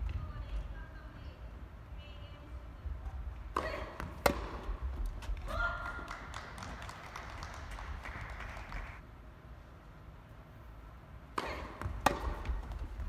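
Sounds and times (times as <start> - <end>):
racket hitting tennis ball: 3.5 - 5.6, 11.3 - 13.0.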